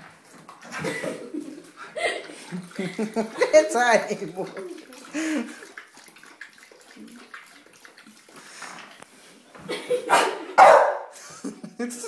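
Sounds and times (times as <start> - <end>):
water splashing and gurgling: 0.0 - 9.0
cat lapping water: 0.0 - 9.6.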